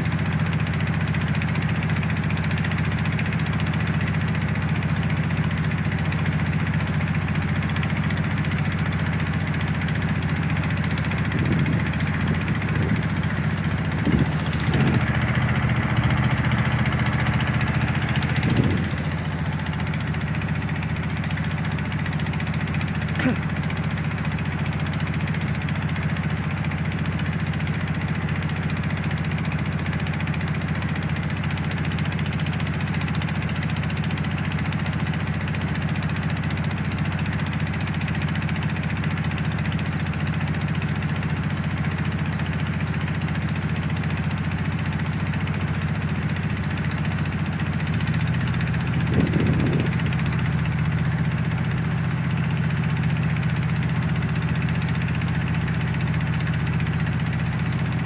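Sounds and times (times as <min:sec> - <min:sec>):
ferry engine humming: 0:09.2 - 0:23.7, 0:45.7 - 0:58.0.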